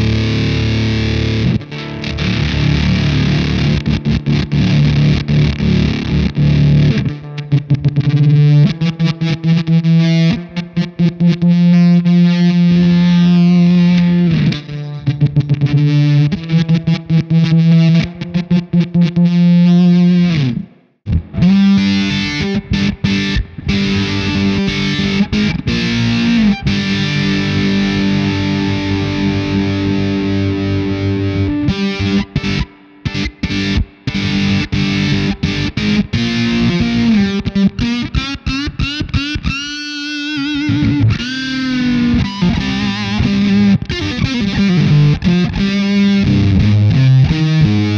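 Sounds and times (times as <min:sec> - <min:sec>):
fuzzed electric guitar: 0:00.0 - 0:47.9.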